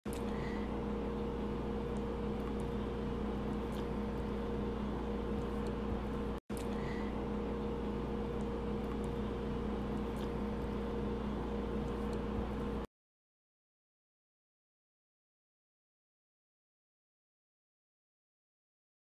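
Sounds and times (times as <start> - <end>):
steady machine hum: 0.1 - 12.9.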